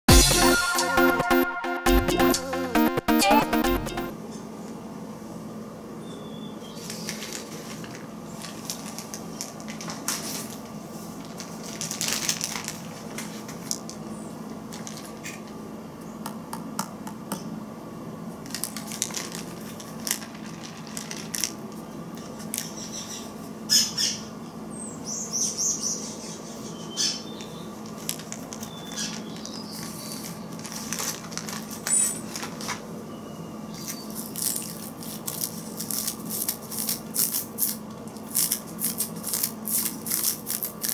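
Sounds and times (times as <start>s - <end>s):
plastic bag crinkling: 6.9s - 14.0s, 18.4s - 22.7s, 27.8s - 32.8s, 33.9s - 40.9s.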